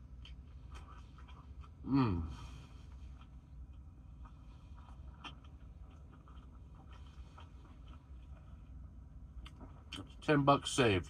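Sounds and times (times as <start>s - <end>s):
low steady hum: 0.0s - 11.0s
man humming mmm while eating: 1.8s - 2.6s.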